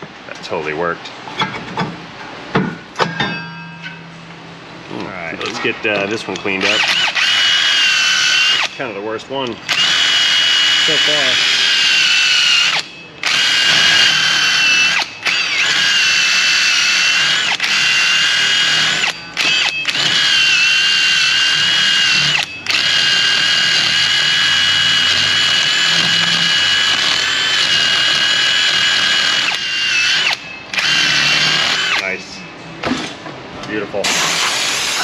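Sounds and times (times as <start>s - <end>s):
cordless drill whining: 6.6s - 8.8s, 9.7s - 32.1s.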